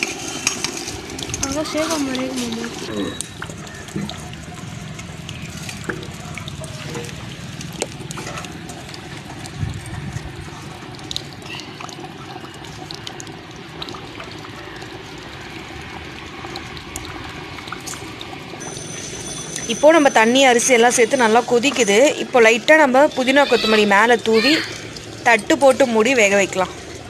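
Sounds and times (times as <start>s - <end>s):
pot of rice bubbling at a boil: 0.0s - 27.0s.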